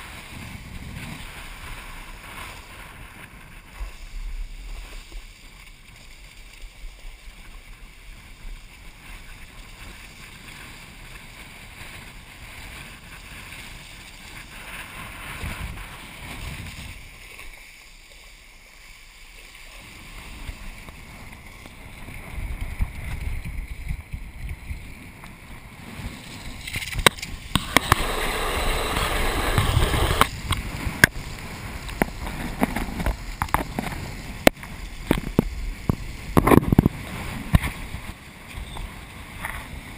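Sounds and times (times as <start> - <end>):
wind buffeting microphone: 20.2 - 39.9
water rushing and splashing: 25.4 - 39.9.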